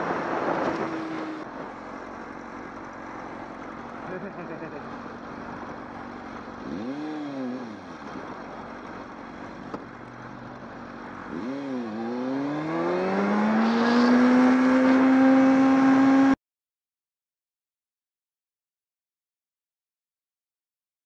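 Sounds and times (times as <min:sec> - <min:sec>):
motorcycle engine revving: 0:00.0 - 0:16.4.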